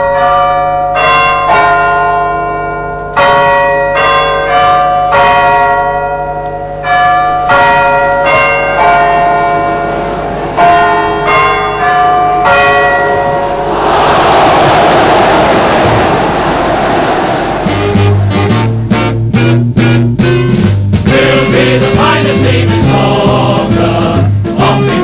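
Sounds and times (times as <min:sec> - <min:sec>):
bells ringing in a peal: 0:00.0 - 0:14.1.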